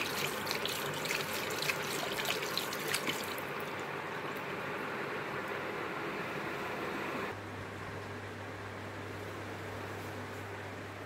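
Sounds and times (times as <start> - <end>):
dog lapping water: 0.0 - 3.7.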